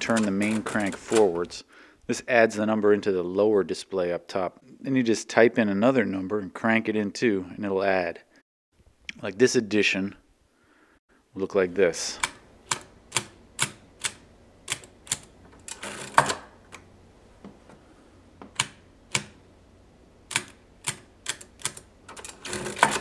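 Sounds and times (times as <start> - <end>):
adding machine crank clatter: 22.1 - 23.0.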